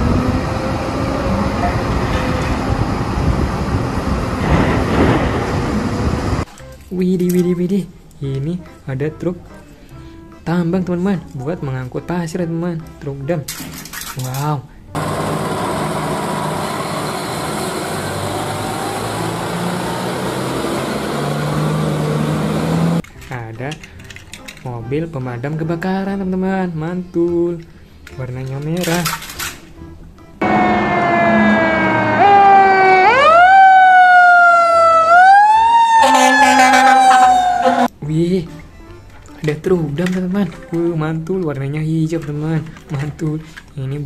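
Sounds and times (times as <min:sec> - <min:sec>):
diesel truck driving past: 0:00.0 - 0:06.4, 0:15.0 - 0:23.0, 0:30.4 - 0:37.9
fire engine siren wailing: 0:00.0 - 0:06.4, 0:15.0 - 0:23.0, 0:30.4 - 0:37.9
steady siren tone: 0:30.4 - 0:37.9.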